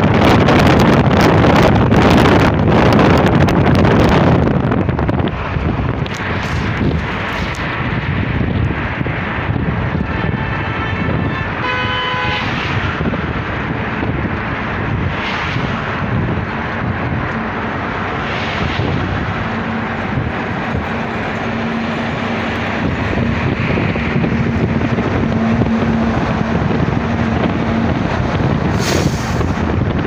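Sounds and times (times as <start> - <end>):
truck drone: 0.0 - 30.0
tyre and wind noise: 0.0 - 30.0.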